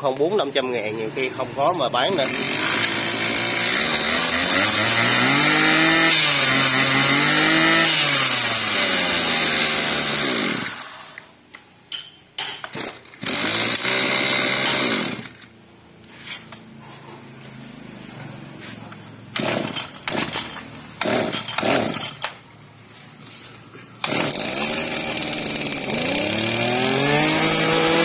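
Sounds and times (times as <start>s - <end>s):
brush cutter engine revving: 2.0s - 11.1s, 13.2s - 15.4s, 19.3s - 22.3s, 24.0s - 28.0s.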